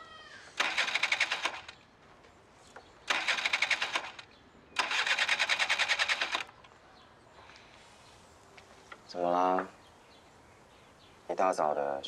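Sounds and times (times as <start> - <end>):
scooter electric starter cranking: 0.6 - 1.8, 3.1 - 6.6.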